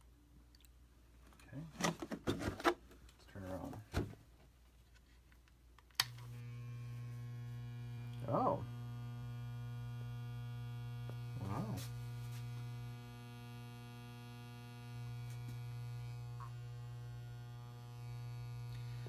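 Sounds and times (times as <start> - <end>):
sonic cleaner humming: 6.1 - 19.0.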